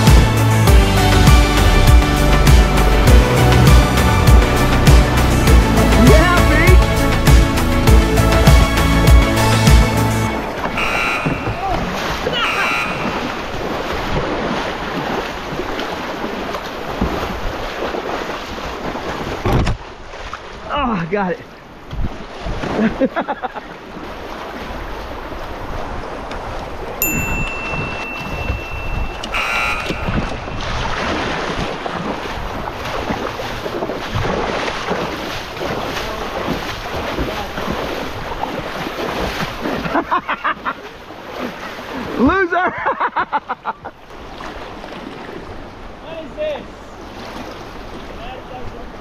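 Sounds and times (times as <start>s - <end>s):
river rapids rushing: 0.0s - 19.2s, 23.9s - 42.5s
wind on microphone: 24.6s - 39.8s
brief high tone: 27.0s - 30.6s.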